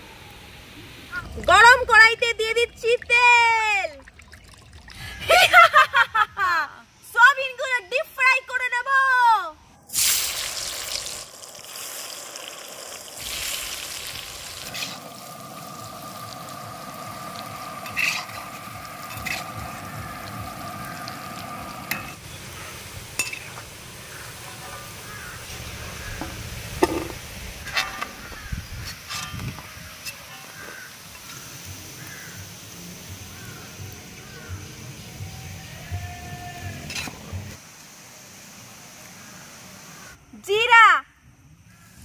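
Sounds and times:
food deep-frying in hot oil: 9.9s - 35.7s.

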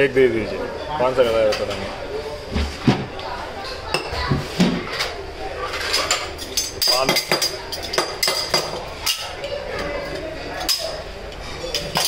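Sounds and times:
metal spatulas clinking on steel: 5.9s - 12.0s.

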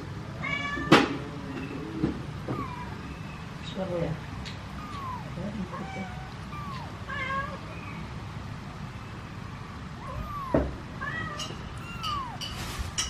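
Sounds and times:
kitten meowing: 2.4s - 3.1s, 4.6s - 7.7s, 10.0s - 12.7s
kitten chirp: 2.4s - 3.4s, 4.5s - 8.0s, 10.0s - 12.7s.

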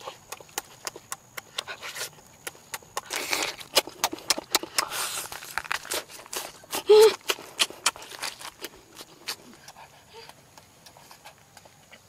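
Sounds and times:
chewing and lip-smacking: 0.0s - 12.0s.

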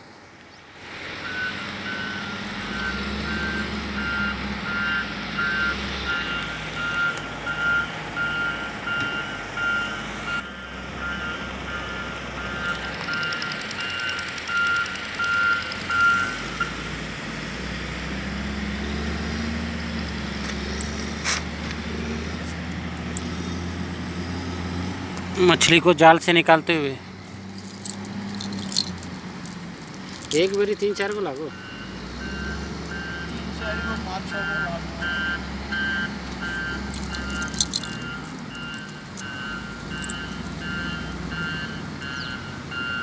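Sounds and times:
vehicle reversing beeper: 1.2s - 16.8s, 30.3s - 43.0s.

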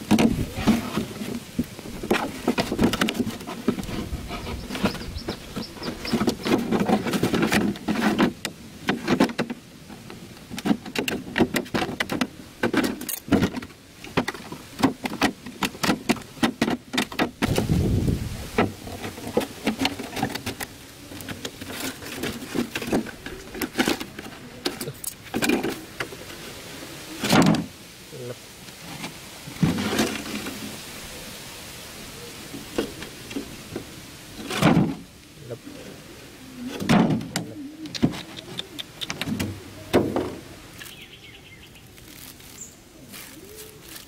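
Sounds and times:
plastic jar crinkling and rattling: 42.0s - 44.0s.

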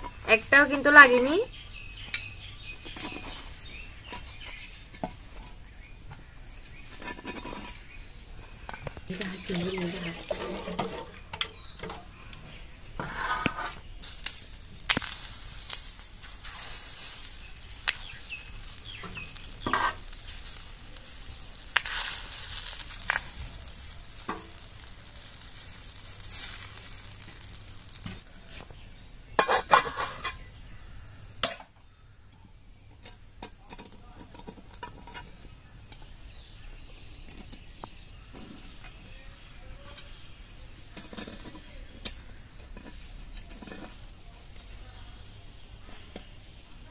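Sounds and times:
batter sizzling in hot pan: 0.0s - 46.9s
batter being stirred: 6.2s - 28.6s
utensils clinking on metal pan: 29.4s - 30.4s.

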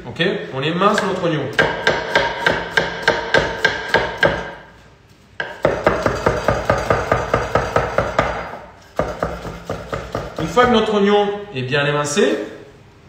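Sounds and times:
knife slicing onion on wooden board: 5.4s - 10.8s.

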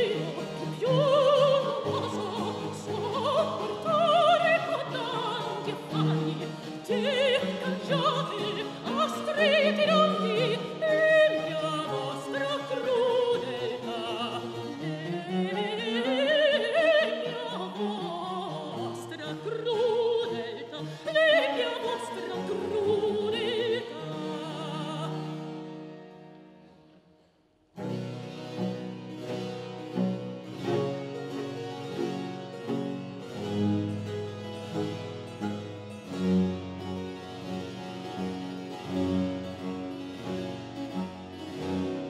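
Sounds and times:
soprano singing opera aria: 0.0s - 25.6s
cello: 0.0s - 27.0s, 27.8s - 42.0s.

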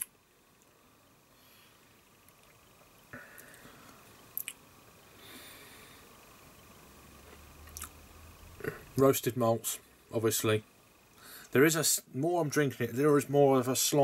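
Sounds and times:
soft mouth noises: 4.4s - 4.6s.

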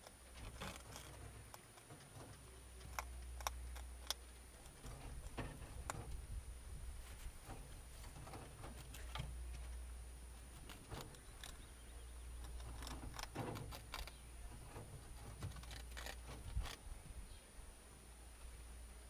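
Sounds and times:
rabbits nibbling: 0.0s - 19.0s
soft rustling: 4.2s - 17.4s.

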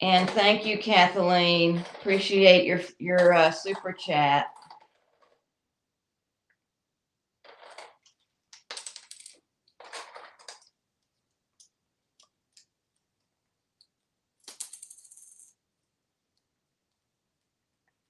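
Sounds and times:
coins clattering on countertop: 7.4s - 10.8s, 14.4s - 15.6s
coin rattling and ringing: 14.4s - 15.6s.

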